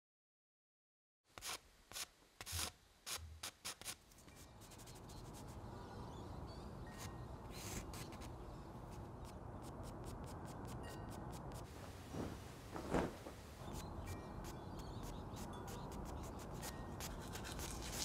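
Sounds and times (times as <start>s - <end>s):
low background noise: 1.3s - 18.0s
charcoal scratching on paper: 3.7s - 5.6s, 7.0s - 11.7s, 14.8s - 18.0s.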